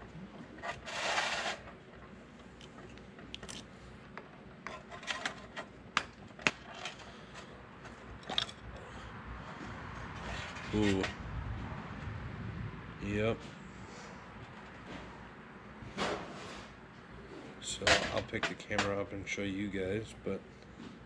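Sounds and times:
screwdriver scrape: 0:00.6 - 0:01.8.

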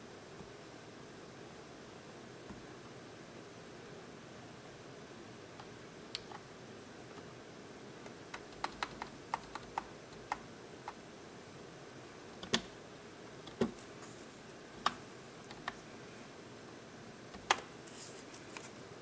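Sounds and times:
computer keyboard typing: 0:08.3 - 0:11.0, 0:12.4 - 0:12.7, 0:17.3 - 0:17.7.

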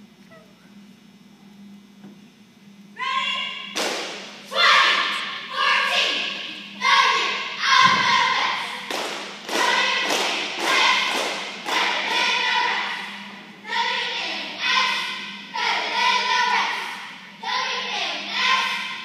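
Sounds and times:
girls shouting a cheer: 0:03.0 - 0:19.0
claps or stomps: 0:03.7 - 0:04.4, 0:08.8 - 0:12.3
low thud: 0:07.8 - 0:08.2.

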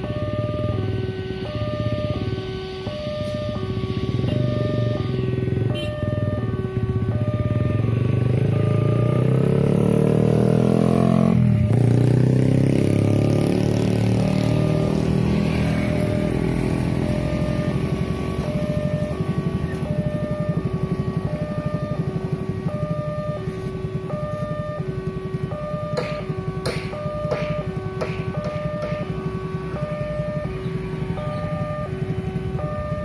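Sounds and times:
motorcycle engines: 0:00.0 - 0:33.0
motorcycle passing close: 0:00.0 - 0:33.0
level crossing alarm chime: 0:02.8 - 0:05.2, 0:07.2 - 0:09.4, 0:14.1 - 0:24.9, 0:25.5 - 0:26.3, 0:26.9 - 0:32.0.

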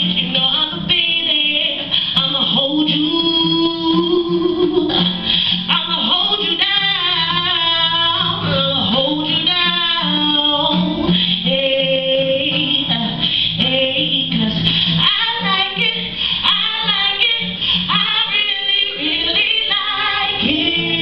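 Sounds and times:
acoustic guitar: 0:00.0 - 0:21.0
woman singing into microphone: 0:00.0 - 0:21.0.

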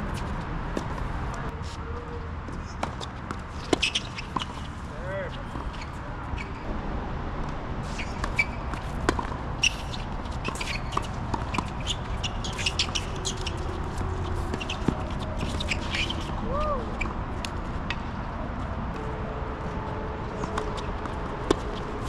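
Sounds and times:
tennis balls hit and bounced: 0:00.0 - 0:01.8, 0:02.4 - 0:06.7, 0:07.4 - 0:19.2, 0:20.3 - 0:22.0
shuffling steps: 0:00.0 - 0:06.0.

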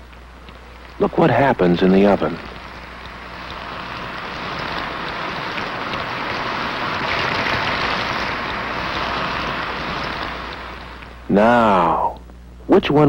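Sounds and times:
fries sizzling in oven: 0:00.0 - 0:12.2.

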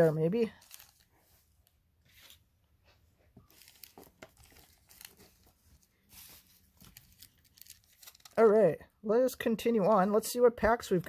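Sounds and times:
packaging crinkling and rustling: 0:00.0 - 0:02.4, 0:03.3 - 0:08.4.

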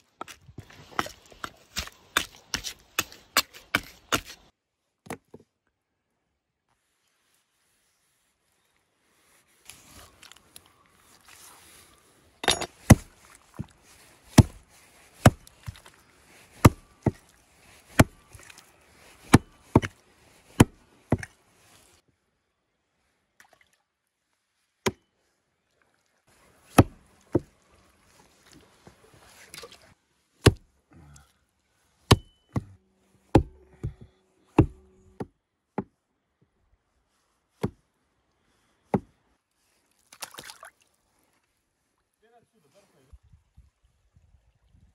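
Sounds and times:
hatchet chopping through bone: 0:01.7 - 0:04.4, 0:15.2 - 0:15.5, 0:17.9 - 0:18.2, 0:19.3 - 0:19.9, 0:20.6 - 0:21.3, 0:26.7 - 0:27.4, 0:30.4 - 0:30.6, 0:32.1 - 0:35.9.

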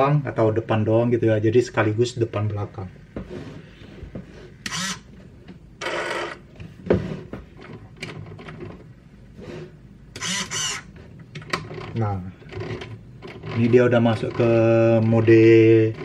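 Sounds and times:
servo mechanical whirs: 0:04.6 - 0:05.1, 0:10.2 - 0:10.9.

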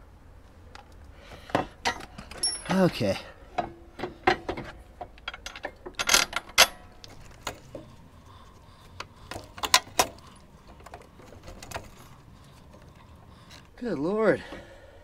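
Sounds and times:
metal bolt clinking and scraping: 0:00.8 - 0:08.0, 0:09.3 - 0:13.7.

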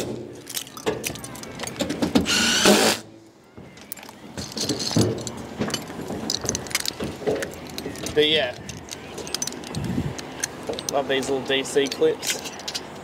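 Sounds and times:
cordless drill burst: 0:02.3 - 0:03.0.

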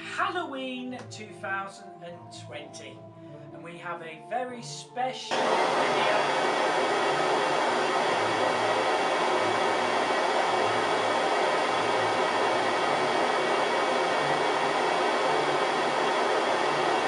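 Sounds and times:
vacuum cleaner motor whoosh: 0:05.3 - 0:17.0.

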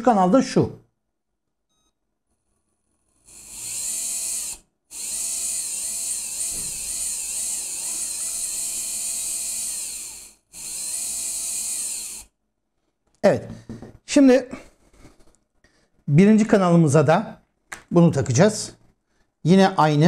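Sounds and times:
electric motor whining: 0:03.2 - 0:12.3.

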